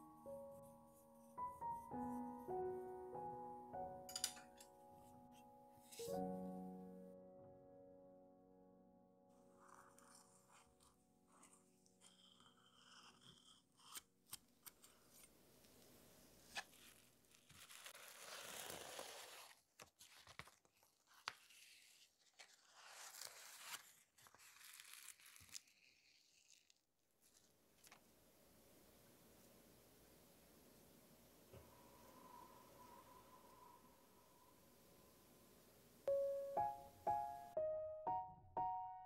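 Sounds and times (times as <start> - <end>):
faint rustling of peeling: 16.4 - 28.0.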